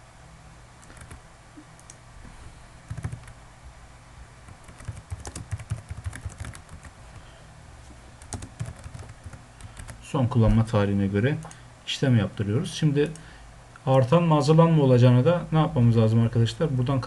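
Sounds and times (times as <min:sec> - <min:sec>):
computer keyboard typing: 0:00.8 - 0:01.2, 0:02.9 - 0:03.4, 0:04.5 - 0:07.2, 0:08.2 - 0:10.0.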